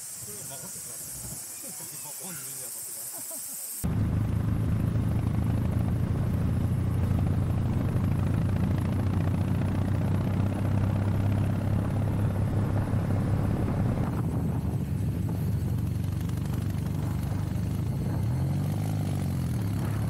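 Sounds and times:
motorcycle engine cruising: 3.8 - 20.0
wind on microphone: 7.5 - 20.0.

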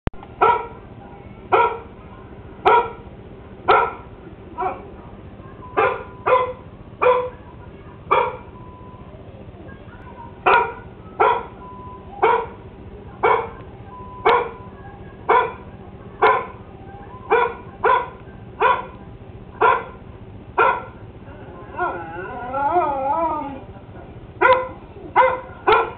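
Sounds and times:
dog barking: 0.4 - 0.8, 1.5 - 2.0, 2.6 - 3.1, 3.7 - 5.0, 5.8 - 7.4, 8.1 - 8.6, 10.4 - 12.6, 13.2 - 13.6, 14.2 - 14.6, 15.2 - 16.6, 17.3 - 19.0, 19.6 - 20.0, 20.6 - 21.0, 24.4 - 25.9.

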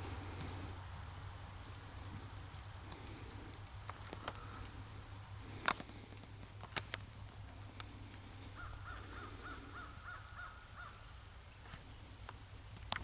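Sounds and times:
faint animal calls: 4.1 - 4.8, 8.1 - 11.2.

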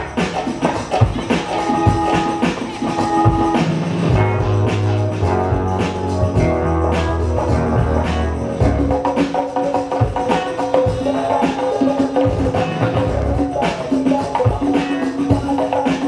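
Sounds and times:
loud dance music: 0.0 - 16.0
deep bass notes: 3.2 - 9.3, 12.2 - 13.7.

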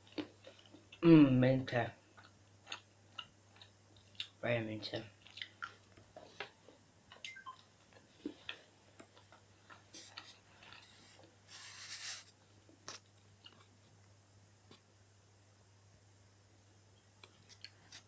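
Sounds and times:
person chewing chocolate: 0.0 - 1.0, 2.1 - 4.4, 5.0 - 11.2, 12.8 - 13.9.

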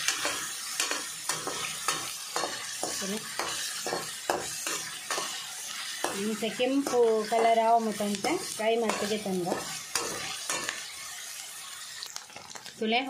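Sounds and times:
ladle scraping and knocking pan: 0.0 - 7.8, 8.8 - 11.0
cheese cubes sizzling in oil: 0.0 - 13.0.

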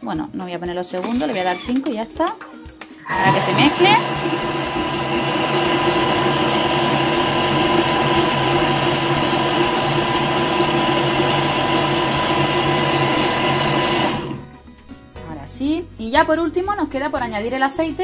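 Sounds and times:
kitchen mixer motor whining: 3.1 - 14.4.

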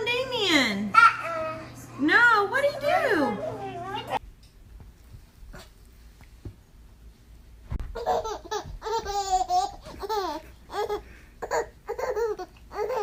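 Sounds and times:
baby laughing and squealing: 1.0 - 1.7, 8.0 - 13.0.

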